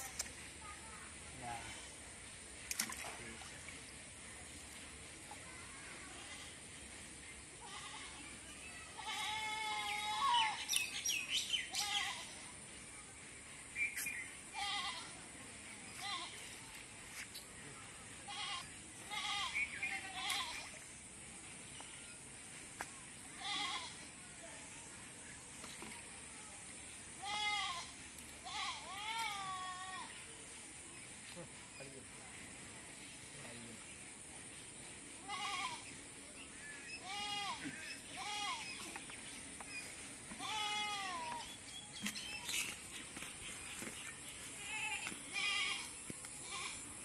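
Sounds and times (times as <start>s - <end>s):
goat bleating: 9.0s - 10.4s, 18.3s - 20.6s, 23.4s - 23.9s, 27.2s - 30.1s, 35.2s - 35.8s, 37.0s - 38.6s, 40.4s - 41.4s, 44.6s - 46.8s.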